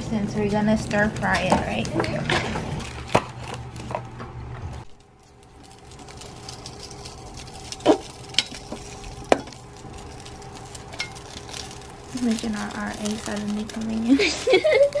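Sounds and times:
dumplings sizzling in pot: 0:05.0 - 0:15.0.

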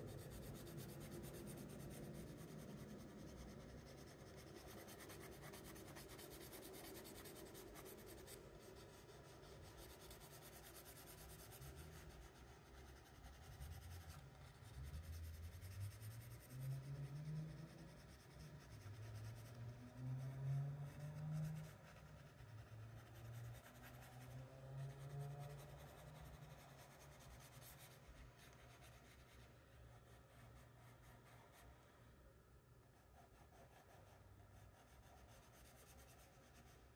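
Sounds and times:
pencil scratching on paper: 0:00.2 - 0:16.1, 0:32.9 - 0:36.8.

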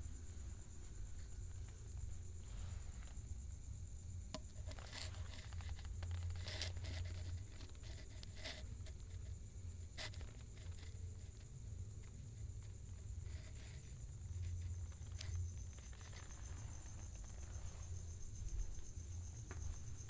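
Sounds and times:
faint high whine: 0:00.0 - 0:20.0
clothes rustling against phone: 0:14.7 - 0:20.0.

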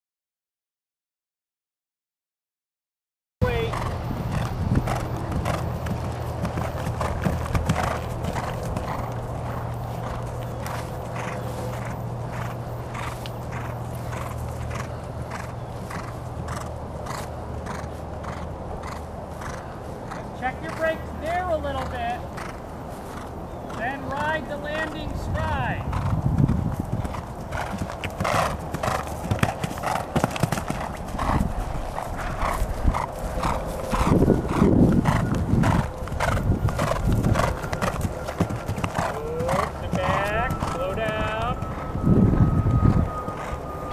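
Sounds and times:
horse hoofbeats on grass: 0:03.4 - 0:43.6
low hum: 0:25.7 - 0:43.9.

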